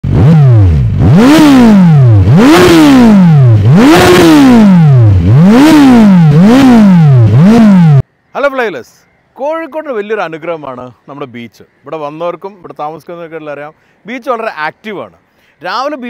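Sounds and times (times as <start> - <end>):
motorcycle engine revving: 0.0 - 8.0.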